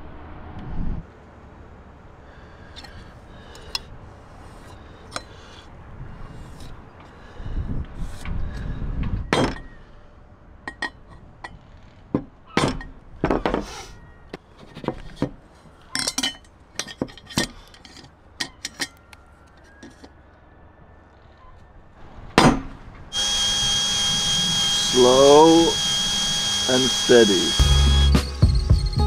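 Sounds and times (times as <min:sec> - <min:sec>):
metal clinking on wooden boards: 0:14.7 - 0:20.1.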